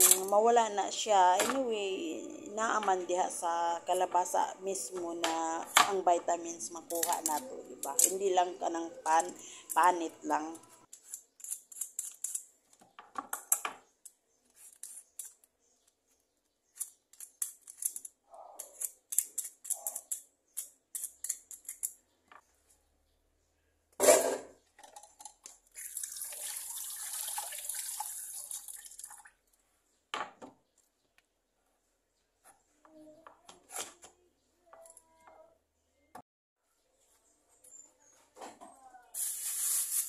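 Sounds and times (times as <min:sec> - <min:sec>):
peeler scraping squash skin: 0:10.9 - 0:12.5.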